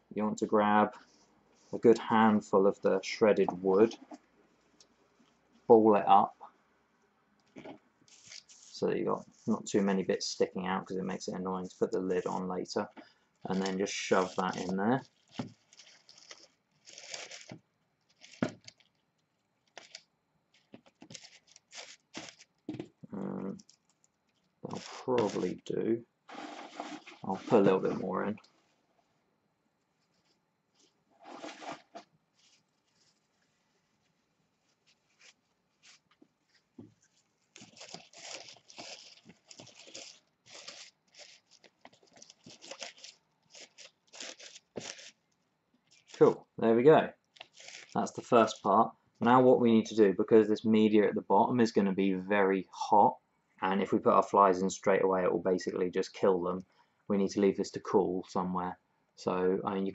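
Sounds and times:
scratchy rustling of wood shavings: 8.1 - 8.8, 13.5 - 18.9, 20.6 - 22.5, 24.7 - 25.6, 26.3 - 28.4, 31.2 - 33.3, 37.5 - 45.2, 47.4 - 48.7.

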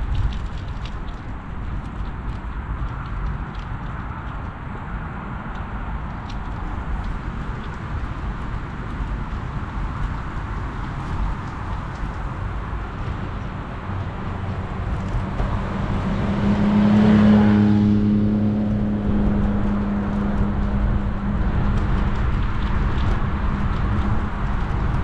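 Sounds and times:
wind noise on microphone: 0.0 - 25.0
vehicle passing: 11.0 - 25.0.

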